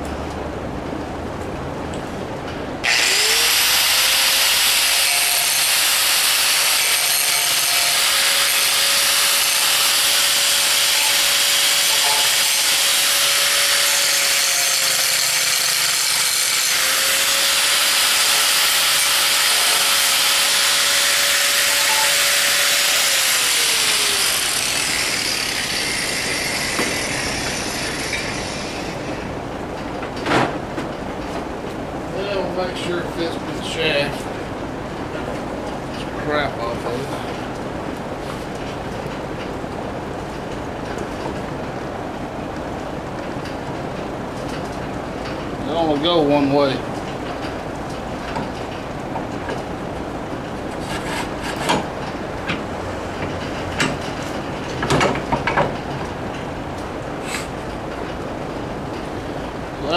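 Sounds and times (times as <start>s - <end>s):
angle grinder grinding metal: 2.8s - 29.3s.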